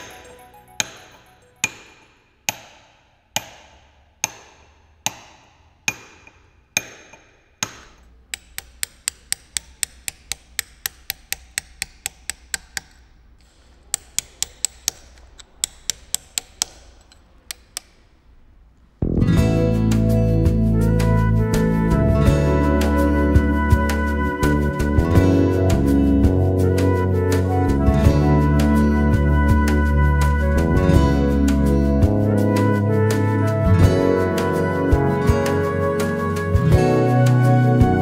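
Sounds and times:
hammer striking steel chisel: 1.6s - 18.0s.

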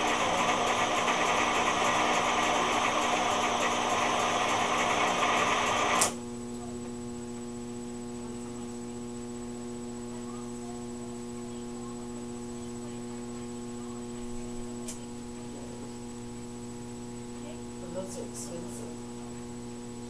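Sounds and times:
rotator motors whirring and rattling: 0.0s - 6.2s
steady electrical hum: 0.0s - 20.0s.

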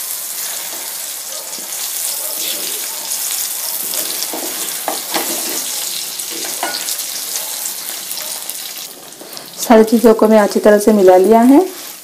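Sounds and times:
food sizzling in frying oil: 0.0s - 12.0s
wooden spatula knocking and scraping: 3.8s - 6.9s.

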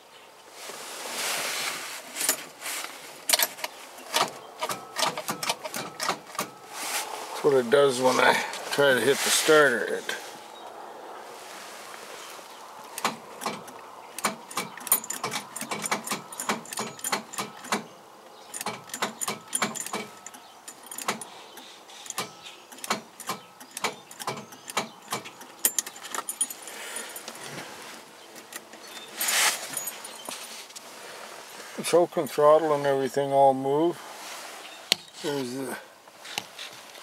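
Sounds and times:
car starter clicking: 3.3s - 6.6s, 12.9s - 17.9s, 18.5s - 26.3s.

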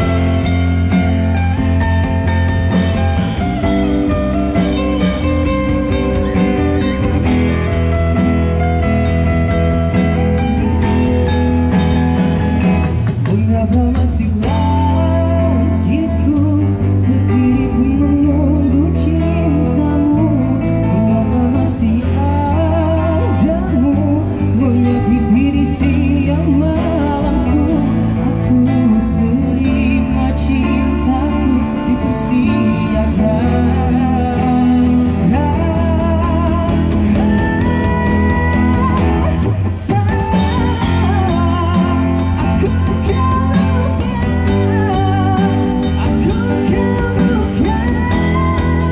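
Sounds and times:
bass line: 0.0s - 48.9s
strummed guitars: 0.0s - 48.9s
person singing with vibrato: 12.7s - 48.9s.

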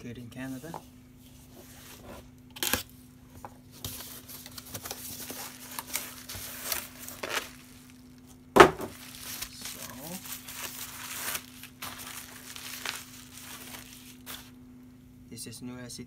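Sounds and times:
plastic mailer rustling: 3.6s - 14.6s.

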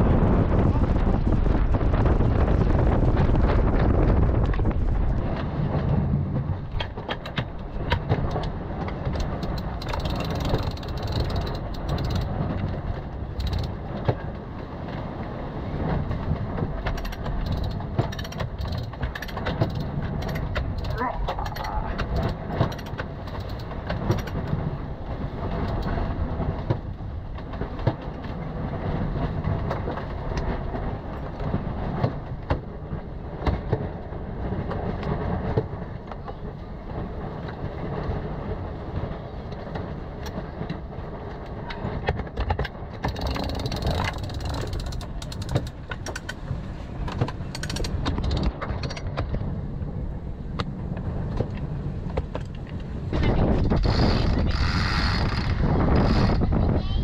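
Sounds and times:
waves: 0.0s - 57.0s
wind: 0.0s - 57.0s
winch pawls clicking: 9.1s - 12.3s, 13.4s - 13.8s, 16.9s - 24.4s, 43.0s - 46.4s.

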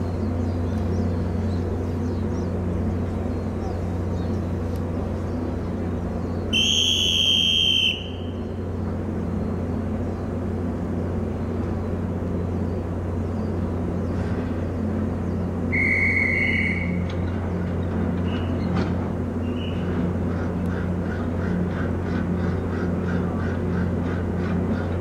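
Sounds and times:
ferry engines humming: 0.0s - 25.0s
hand whistle blasts: 6.6s - 8.2s, 15.7s - 17.0s.

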